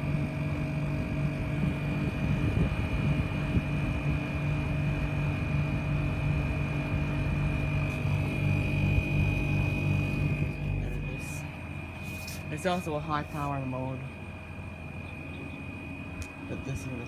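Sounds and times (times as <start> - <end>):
air conditioner hum and airflow: 0.0 - 17.0
high-pitched whine: 5.4 - 17.0.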